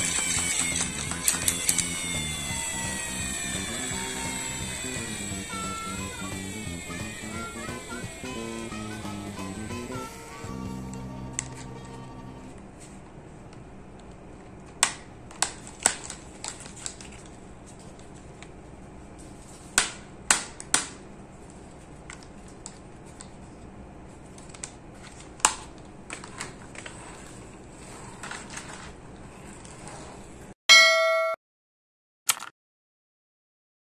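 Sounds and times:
plastic toy truck clicks and knocks: 0.0s - 2.2s, 14.7s - 17.3s, 19.8s - 21.0s, 32.3s - 32.5s
electronic bell chime: 30.7s - 31.4s.

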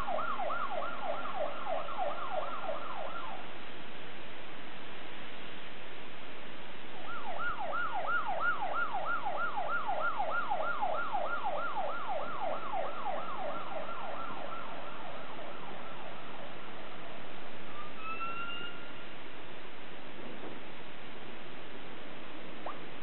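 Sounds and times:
fire truck siren yelping: 0.0s - 3.4s, 7.0s - 16.2s
slow rising siren tone: 0.0s - 3.6s, 7.0s - 19.1s.

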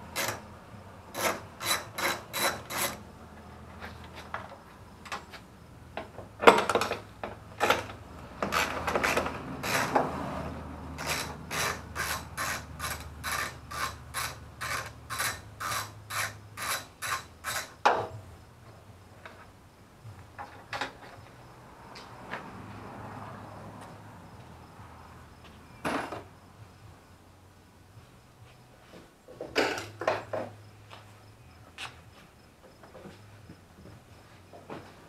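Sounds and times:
ratchet wrench ratcheting: 0.1s - 0.4s, 1.2s - 3.0s, 8.4s - 10.0s, 11.0s - 17.8s.

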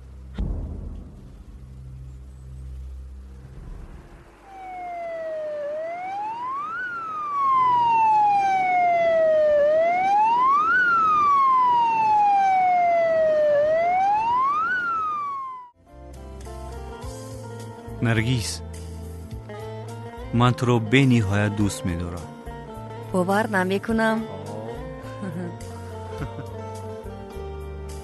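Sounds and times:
ambulance siren wailing: 4.3s - 15.8s.

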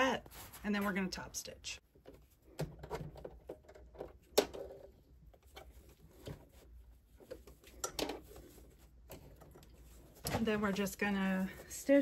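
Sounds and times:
fabric rustling: 0.0s - 1.4s, 5.1s - 12.0s.

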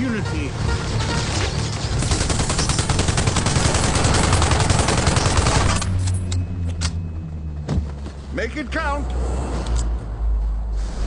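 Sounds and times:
automatic gunfire: 2.0s - 5.9s.

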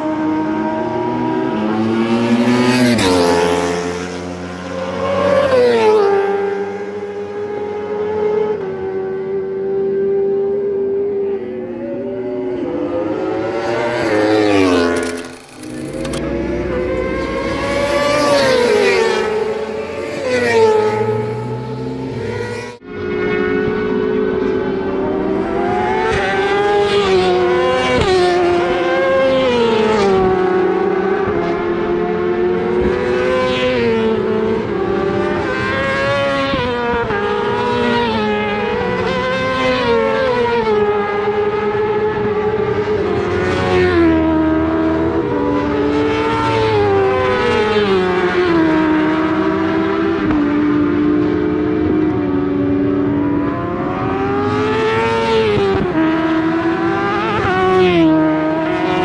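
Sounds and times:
racing motorcycle engines revving: 0.0s - 59.0s.

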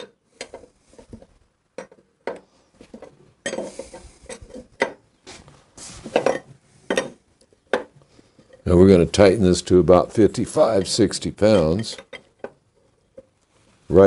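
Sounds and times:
metal hand tools clinking: 10.5s - 13.3s.

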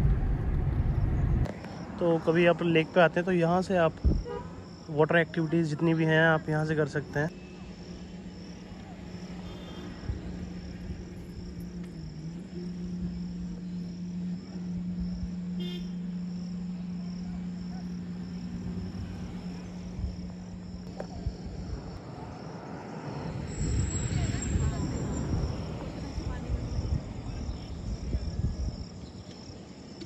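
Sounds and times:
insects chirping: 0.9s - 30.0s
steady low hum: 10.0s - 22.0s.

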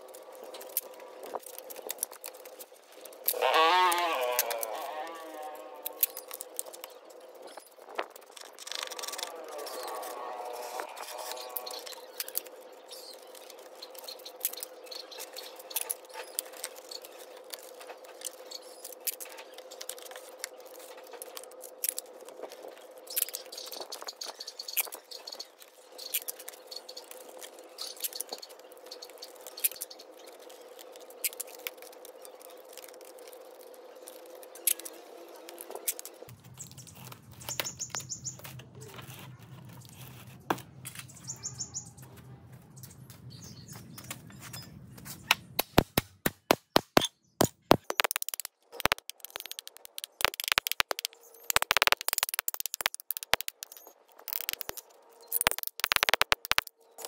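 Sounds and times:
packing tape tearing and scraping: 0.0s - 24.1s, 29.3s - 40.9s, 45.2s - 56.7s
bird chirping: 36.4s - 38.9s, 40.9s - 42.2s, 42.8s - 57.0s.

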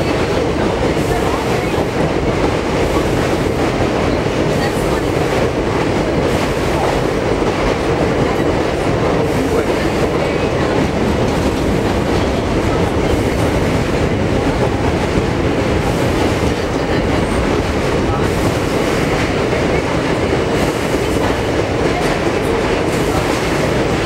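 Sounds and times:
subway car rumbling: 0.0s - 24.0s.

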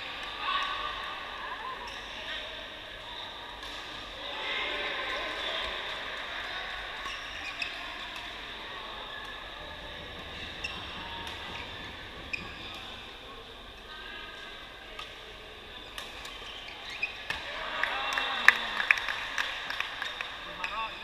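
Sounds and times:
murmur of distant voices: 0.0s - 21.0s
shoe squeaks: 10.0s - 12.9s, 16.3s - 17.3s.

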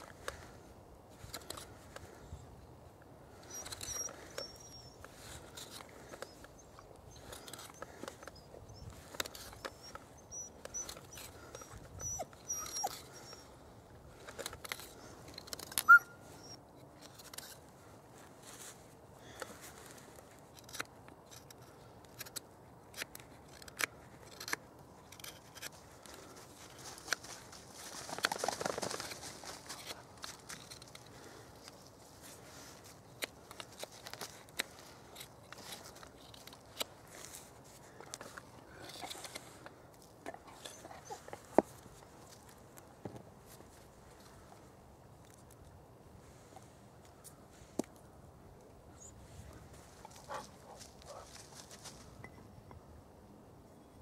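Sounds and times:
knife cutting and scraping wood: 1.2s - 2.3s, 3.3s - 17.8s, 19.3s - 27.4s, 29.6s - 44.5s.

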